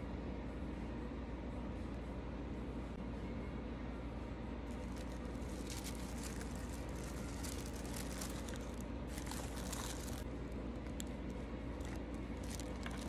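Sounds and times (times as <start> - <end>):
steady low hum: 0.0 - 13.0
tissue paper rustling: 4.7 - 10.3.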